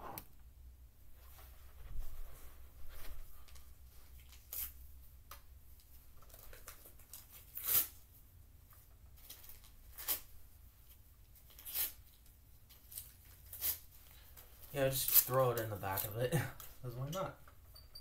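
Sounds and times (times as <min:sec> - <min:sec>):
paper tearing: 0:06.3 - 0:08.0, 0:09.2 - 0:10.3, 0:11.4 - 0:12.1, 0:12.8 - 0:13.9, 0:14.9 - 0:16.2.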